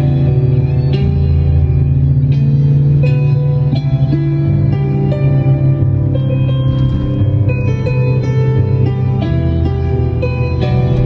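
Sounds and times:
low hum of moving car: 0.0s - 11.0s
music from car radio: 5.2s - 11.0s.

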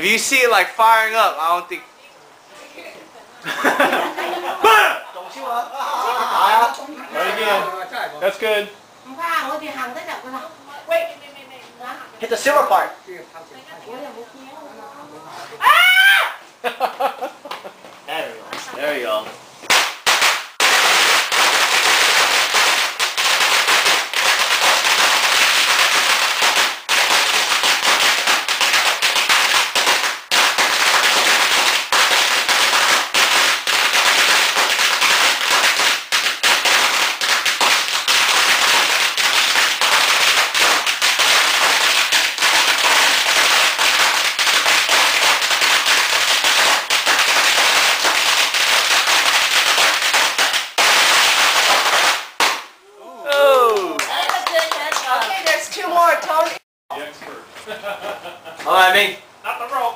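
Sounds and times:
firecrackers banging rapidly: 19.6s - 52.8s.

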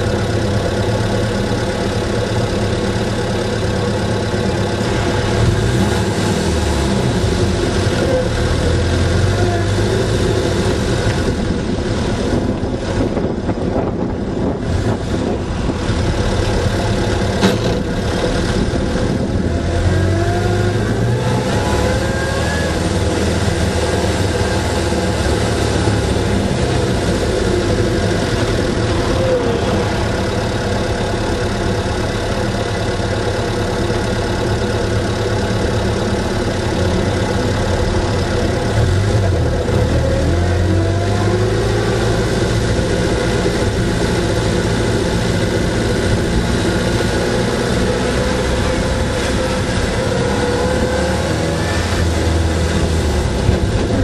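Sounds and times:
car engine running: 0.0s - 54.0s.

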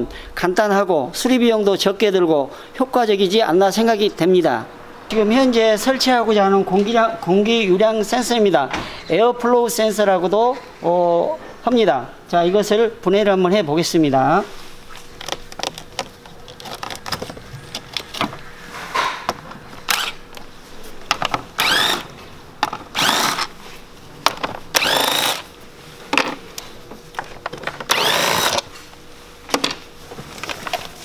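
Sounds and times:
parts clicking and rattling: 15.2s - 20.5s, 21.1s - 23.5s
cordless drill whirring: 19.9s - 20.2s, 21.6s - 22.1s, 23.0s - 23.5s, 24.7s - 25.5s, 27.9s - 28.7s.

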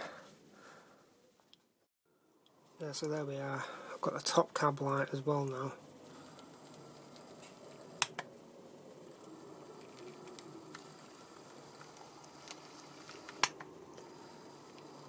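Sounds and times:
model train motor whirr: 5.8s - 15.0s
sharp clicks: 6.3s - 8.3s.

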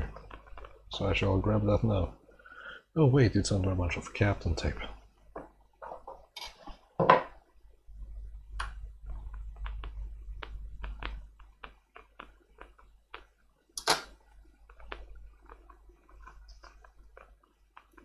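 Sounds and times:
small sharp clicks and taps: 8.5s - 18.0s
crackling scrapes: 14.1s - 18.0s.

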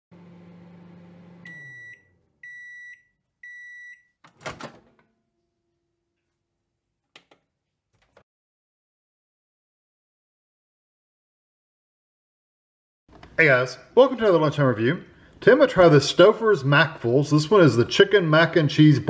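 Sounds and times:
microwave oven humming: 0.1s - 2.6s
microwave beeps: 1.1s - 4.2s
door latch clunk: 4.3s - 5.0s.

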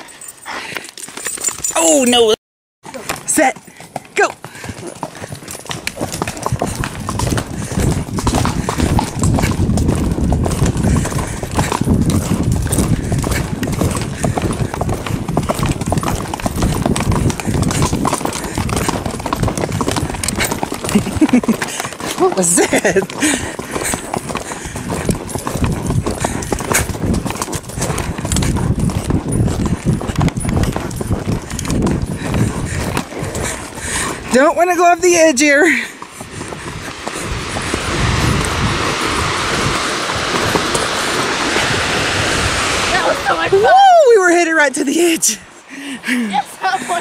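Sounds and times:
horse hoofbeats on gravel: 0.2s - 41.4s
low rumble: 35.9s - 44.6s.

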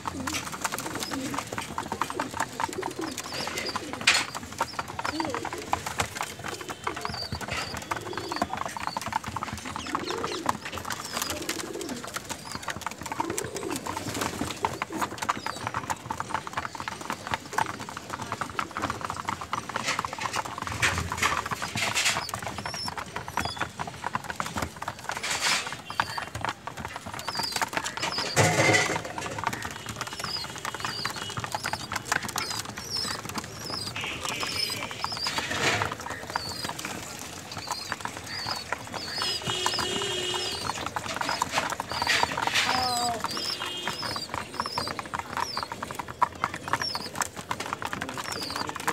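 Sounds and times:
pigeon coos: 0.0s - 15.5s
pigeons pecking grain on floor: 0.0s - 48.9s.

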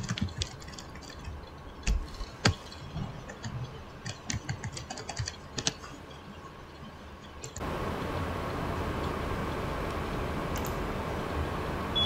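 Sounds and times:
computer keyboard and mouse clicks: 0.0s - 5.9s.

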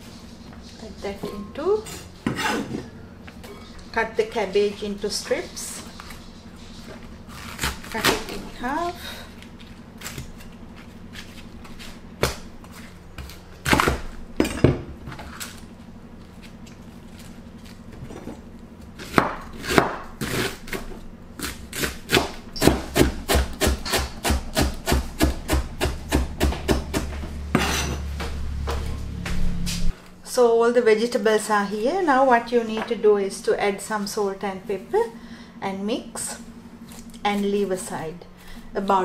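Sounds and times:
knife chopping cabbage on board: 7.3s - 8.8s, 19.0s - 27.2s.

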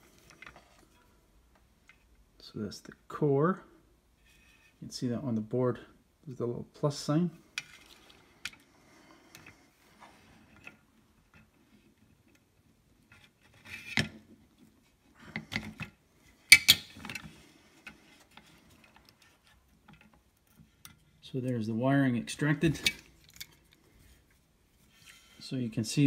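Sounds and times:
faint clicks and rustles: 7.4s - 21.6s
hand tools clattering: 22.7s - 23.7s.

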